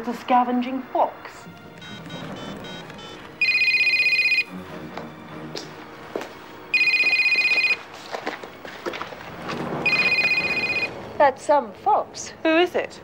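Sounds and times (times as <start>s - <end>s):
telephone ringing: 1.6s - 4.6s, 6.7s - 7.9s, 9.8s - 11.1s.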